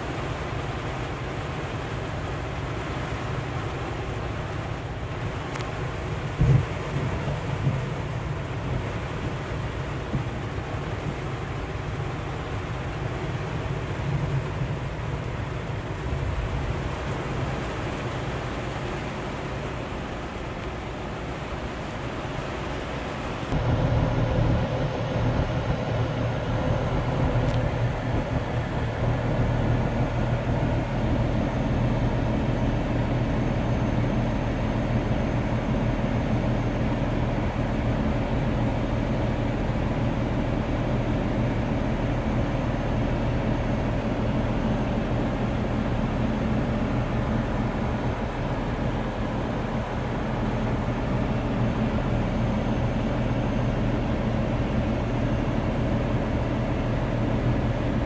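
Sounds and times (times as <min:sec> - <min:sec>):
diesel truck engine running: 0:22.6 - 0:58.0.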